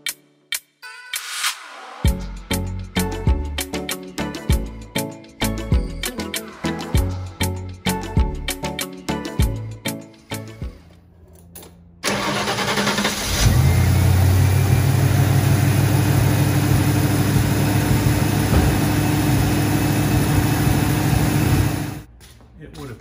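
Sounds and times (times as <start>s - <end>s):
engine cranking and idling: 11.2s - 22.1s.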